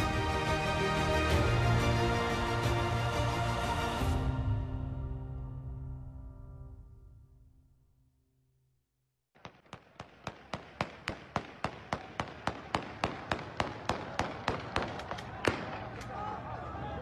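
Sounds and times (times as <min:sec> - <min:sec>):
theme music: 0:00.0 - 0:07.6
rapid sharp bangs: 0:09.4 - 0:15.9.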